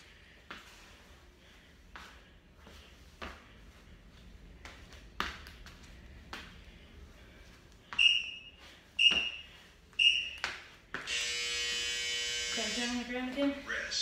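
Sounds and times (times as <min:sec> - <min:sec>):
timer beeping: 0:08.0 - 0:10.4.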